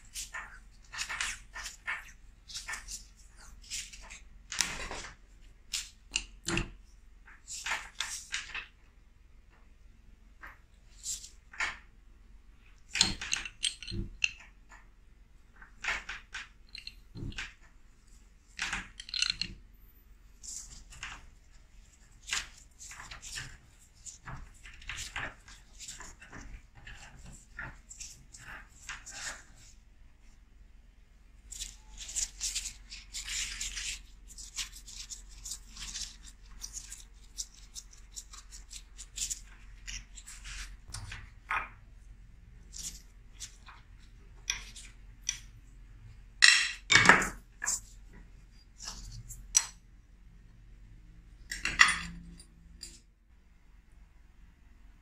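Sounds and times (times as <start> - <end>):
metal tools clinking and scraping: 51.5 - 53.1.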